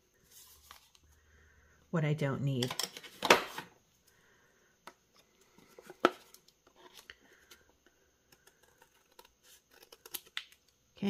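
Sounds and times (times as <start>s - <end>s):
paper rustling: 0.2s - 1.0s.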